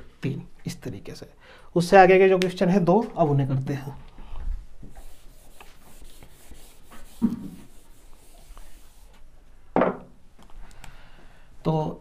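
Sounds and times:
duster rubbing on whiteboard: 4.9s - 9.2s.

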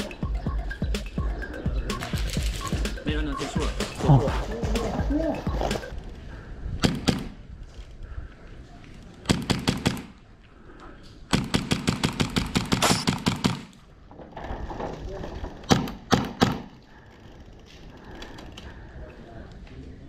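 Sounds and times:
airsoft rifle firing: 6.8s - 7.4s, 9.3s - 10.2s, 11.3s - 13.8s, 15.7s - 16.8s.

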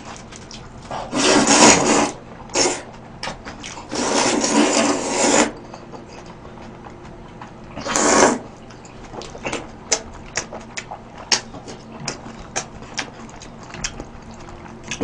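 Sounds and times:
wet chewing with lip smacks: 0.0s - 1.0s, 8.5s - 15.0s
person slurping noodles: 1.0s - 2.9s, 3.8s - 5.6s, 7.8s - 8.5s.

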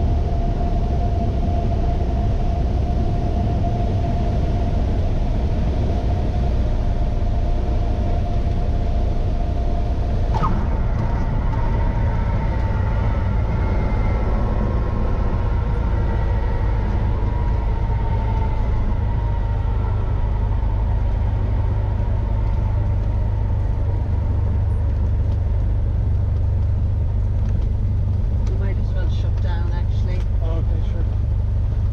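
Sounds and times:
aircraft engine droning: 0.0s - 31.9s
faint higher tones dropping in pitch: 9.4s - 24.2s.

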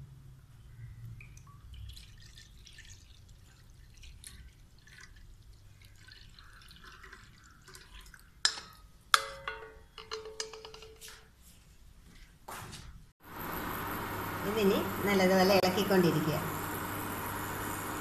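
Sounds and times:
syrup trickling through strainer: 1.2s - 8.8s
sharp ringing knocks: 9.1s - 11.1s.

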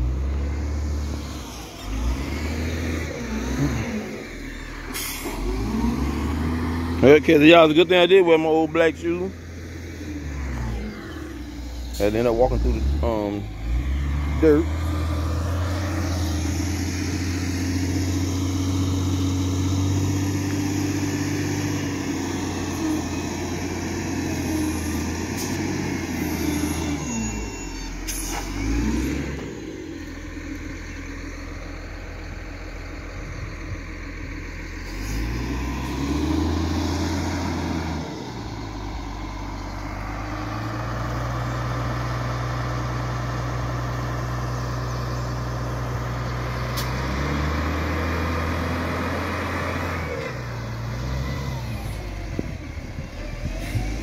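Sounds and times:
diesel engine revving: 0.0s - 54.0s.

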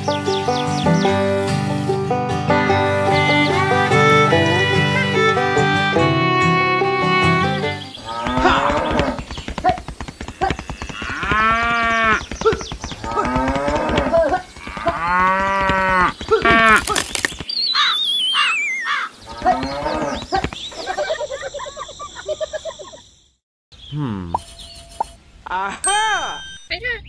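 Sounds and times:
cows mooing: 7.2s - 9.2s, 10.3s - 12.3s, 13.0s - 16.8s, 19.3s - 20.3s.

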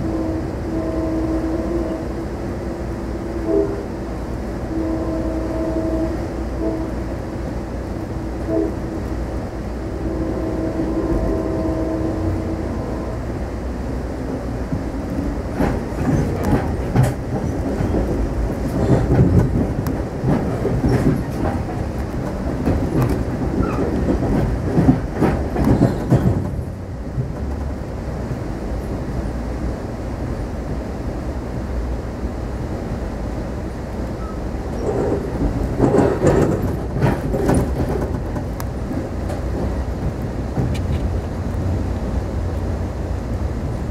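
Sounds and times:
train rumble: 0.0s - 43.9s
wheels clacking over track: 14.7s - 27.7s, 34.8s - 41.3s.

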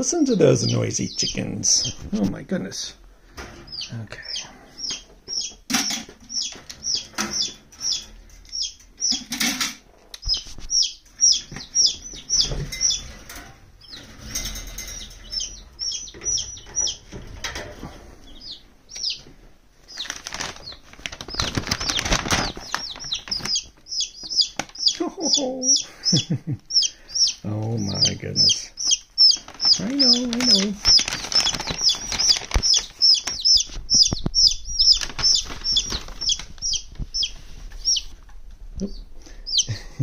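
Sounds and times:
baby chicks peeping: 0.0s - 40.0s
rustling and scuffling: 9.2s - 10.8s, 19.2s - 24.8s, 29.4s - 38.8s.

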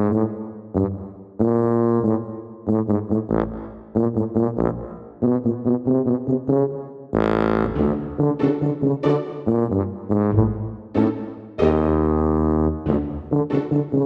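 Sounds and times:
background music melody: 4.7s - 14.0s.

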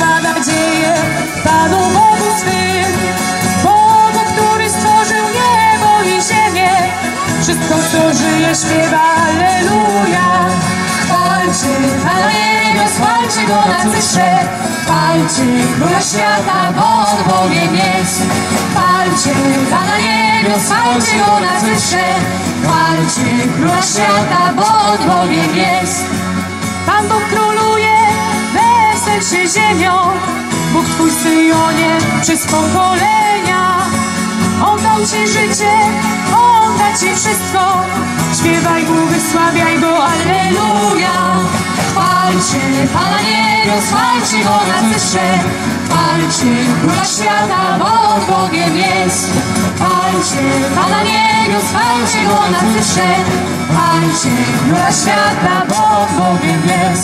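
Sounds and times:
acoustic guitar: 0.0s - 57.0s
drum kit with cymbals: 0.0s - 57.0s
keyboard: 0.0s - 57.0s
women singing: 0.0s - 57.0s.

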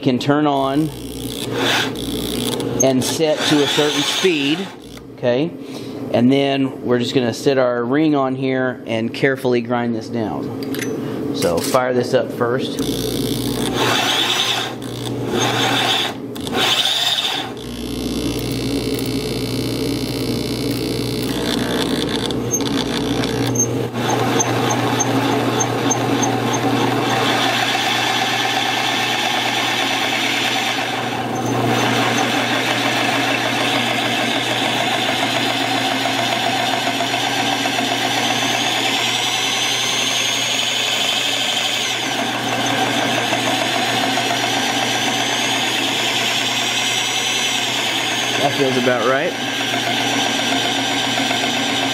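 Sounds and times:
electric drill running: 0.8s - 5.1s, 12.8s - 51.9s
high whine: 17.5s - 23.8s.

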